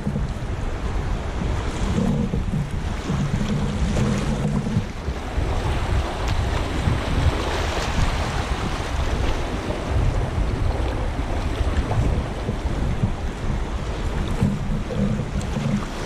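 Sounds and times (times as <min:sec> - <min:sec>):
wind buffeting microphone: 0:00.0 - 0:16.0
river water rushing and splashing: 0:03.0 - 0:12.4.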